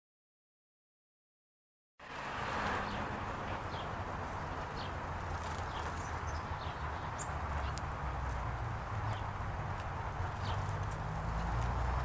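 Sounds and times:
songbirds chirping: 2.5 - 12.0.

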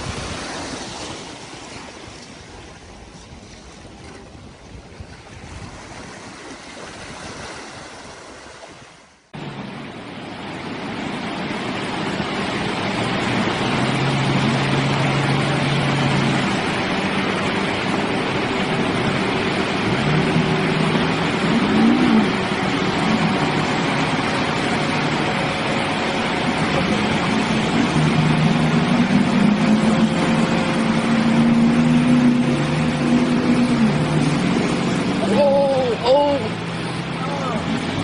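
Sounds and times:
rushing water: 0.0 - 38.0
surf washing: 0.0 - 38.0
wind: 0.0 - 38.0
truck engine droning and revving: 9.2 - 38.0.

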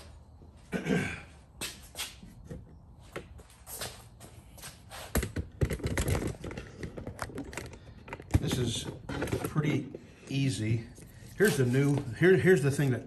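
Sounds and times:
shuffling footsteps: 3.0 - 5.1, 10.5 - 12.5.

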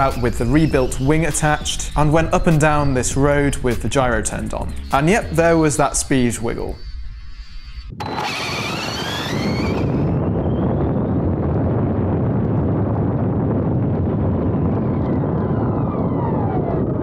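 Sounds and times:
wind and tyre rumble: 0.0 - 17.0
electric motor whine: 6.7 - 10.4.

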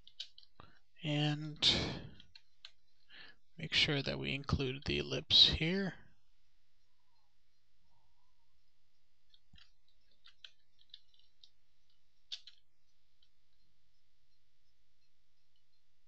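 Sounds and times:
computer mouse clicks: 0.0 - 0.8, 2.1 - 3.0, 9.2 - 13.7
low steady hum: 0.0 - 16.0.

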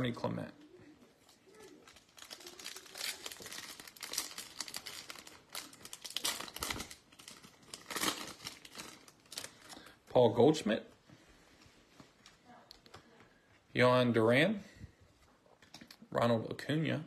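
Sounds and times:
foil wrapper crinkling and tearing: 1.2 - 9.9.

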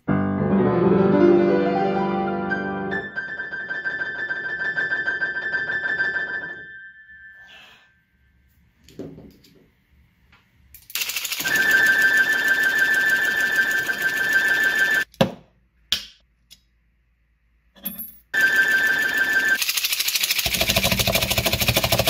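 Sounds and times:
grand piano playing: 0.0 - 6.8
mechanical clatter: 19.6 - 22.0.

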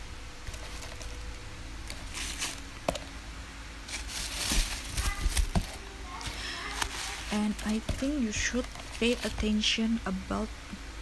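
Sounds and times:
tissue paper rustling: 2.0 - 2.6, 3.9 - 9.7.

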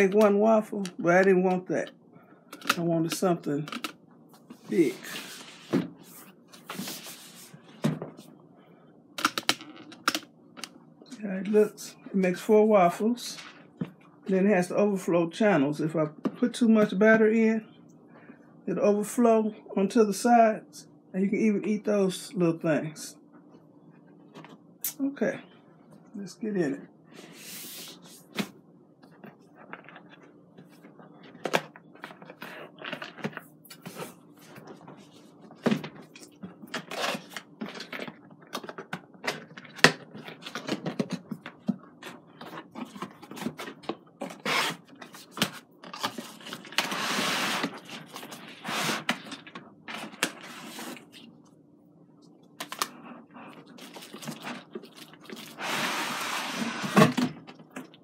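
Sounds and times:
cardboard rustling and tearing: 42.8 - 51.2.

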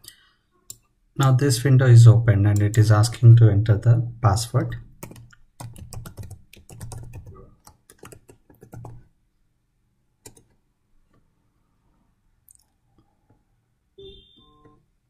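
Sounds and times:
typing on computer keyboard: 5.0 - 9.0, 10.2 - 10.6.

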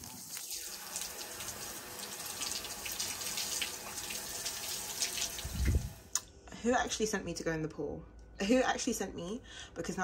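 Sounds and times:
water spraying onto person: 0.0 - 6.1.

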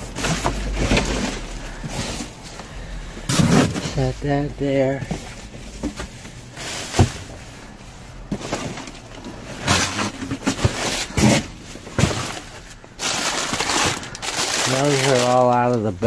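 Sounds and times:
bags rustling: 0.0 - 16.0.

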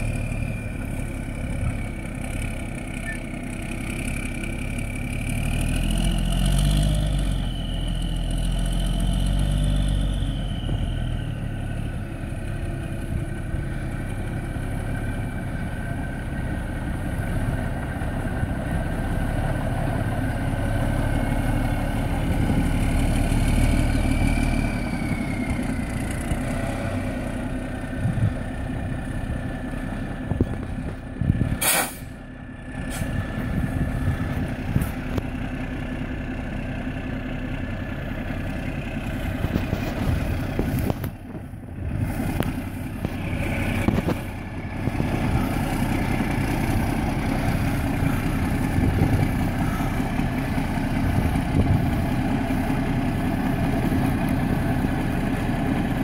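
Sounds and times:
diesel truck engine idling: 0.0 - 56.0
air hiss: 31.6 - 32.1.

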